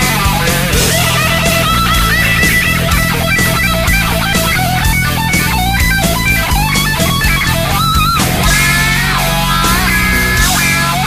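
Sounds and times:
loud rock music: 0.0 - 11.0.

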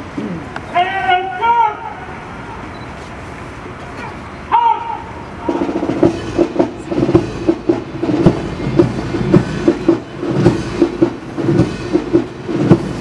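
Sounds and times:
drum beats: 5.4 - 13.0.

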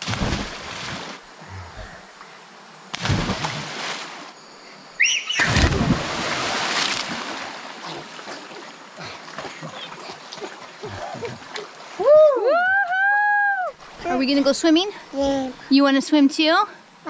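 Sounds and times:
splash into water: 0.0 - 1.2, 2.9 - 4.3, 5.3 - 12.1
water sloshing: 2.9 - 4.4, 5.4 - 12.0.

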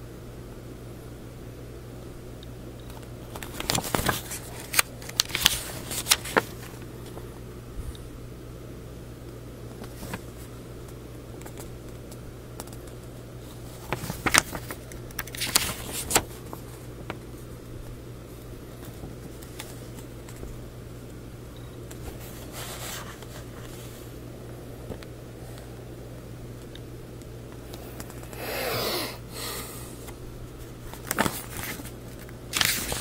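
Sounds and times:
steady low hum: 0.0 - 33.0
paper pages rustling: 3.3 - 7.2, 9.7 - 12.0, 12.6 - 17.5, 21.9 - 24.1, 30.9 - 33.0.

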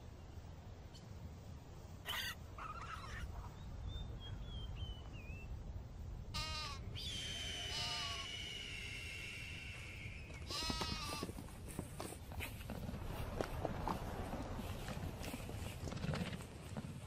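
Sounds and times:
low steady rumble: 0.0 - 17.0
goat-like bleating: 6.3 - 6.8, 7.7 - 8.3, 10.5 - 11.4.

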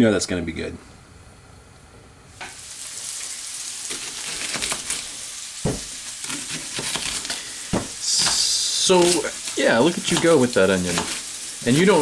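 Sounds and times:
food sizzling in frying pan: 2.3 - 12.0
knife knocking on cutting board: 5.6 - 5.9, 7.7 - 8.0.

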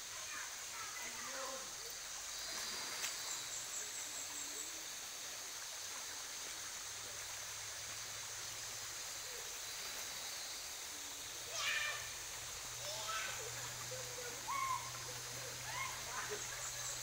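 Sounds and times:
shallow river rushing: 6.0 - 17.0.

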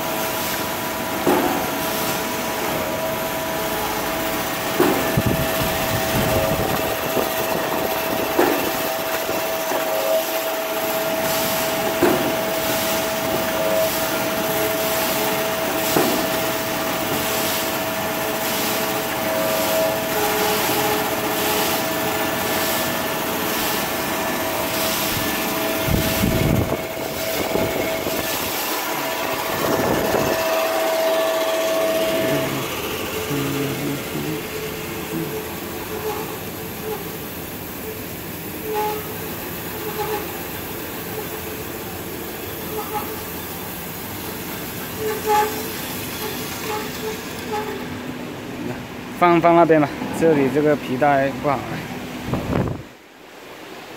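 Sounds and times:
machine motor whine: 0.0 - 48.0
even hiss: 31.8 - 35.8.

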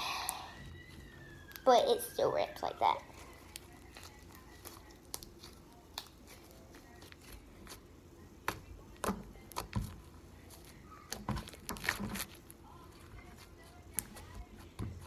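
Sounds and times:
slime squishing and clicking: 3.4 - 7.8.

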